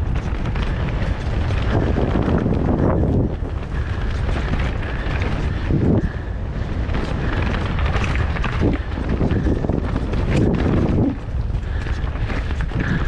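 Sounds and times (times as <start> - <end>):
bike tyres rumbling on rough ground: 0.0 - 13.0
wind buffeting microphone: 0.0 - 13.0
bike thumps over bumps: 6.7 - 13.0.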